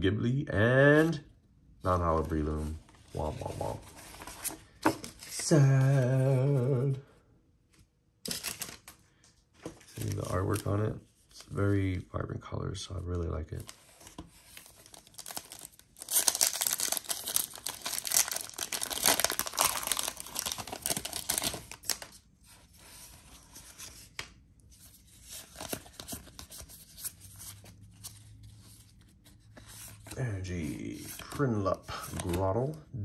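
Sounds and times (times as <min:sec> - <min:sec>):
cards rustling: 0:02.1 - 0:06.7, 0:08.3 - 0:11.8, 0:13.5 - 0:32.8
foil wrapper tearing and crinkling: 0:14.6 - 0:22.1.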